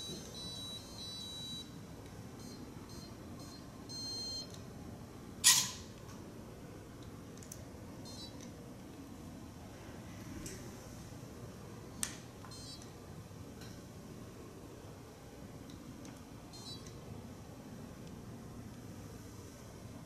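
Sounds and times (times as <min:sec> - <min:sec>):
short electronic beeps: 0:00.0 - 0:01.6, 0:16.6 - 0:16.8.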